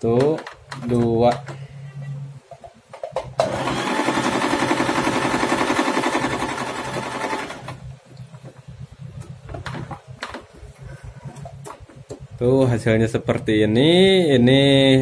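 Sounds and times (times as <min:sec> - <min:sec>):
sewing machine stitching: 0:03.4 - 0:07.8.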